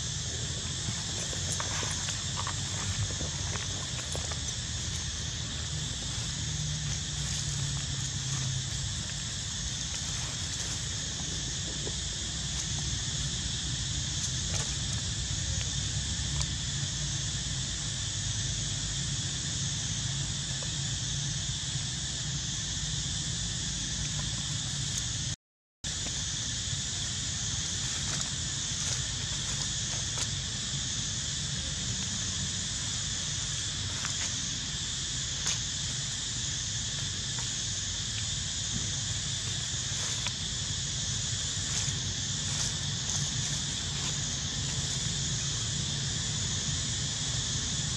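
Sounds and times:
low wind rumble: 0.0 - 24.9
high insect drone: 0.0 - 47.9.

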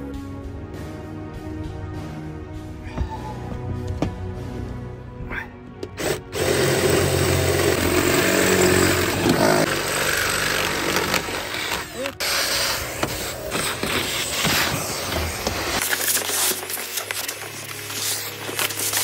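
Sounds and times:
background music: 0.0 - 19.0
power tool running: 6.0 - 19.0.

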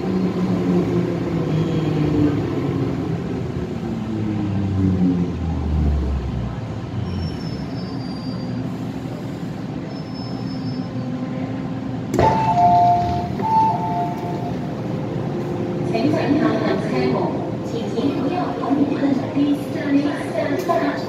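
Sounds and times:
wheels rumbling on track: 0.0 - 19.8
high-pitched wheel squeals: 7.0 - 8.7, 9.9 - 11.0
train stopping clunk: 12.0 - 14.9.

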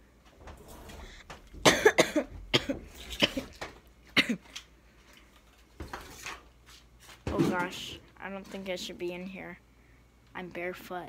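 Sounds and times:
person coughing: 1.6 - 3.6, 4.2 - 4.5.

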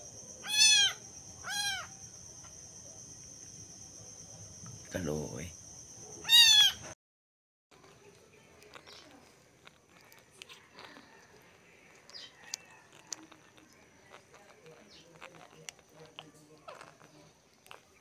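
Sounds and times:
high insect trill: 0.0 - 7.0
kitten meowing: 0.4 - 1.9, 6.2 - 6.9.

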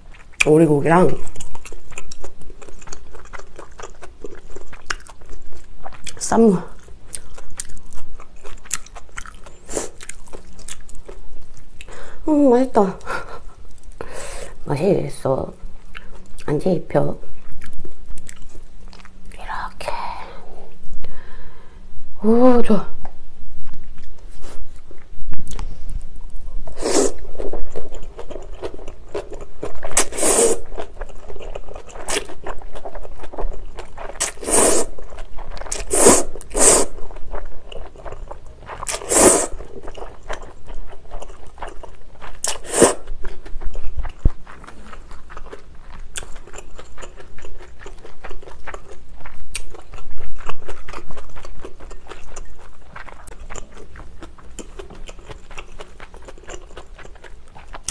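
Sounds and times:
wet chewing: 0.0 - 12.2, 15.8 - 16.6, 17.3 - 19.4, 23.8 - 57.9
noodle slurping: 26.7 - 28.4, 29.8 - 30.8, 34.0 - 37.1, 38.8 - 39.6, 42.4 - 43.1.

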